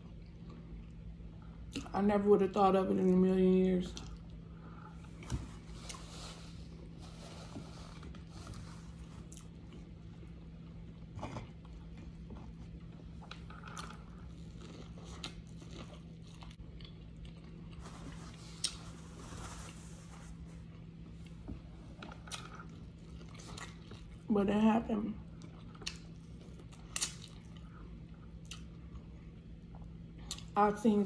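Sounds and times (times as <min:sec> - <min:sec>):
steady low hum: 0:00.0 - 0:31.0
chewing and biting food: 0:08.0 - 0:18.8, 0:20.6 - 0:24.3, 0:25.3 - 0:30.6.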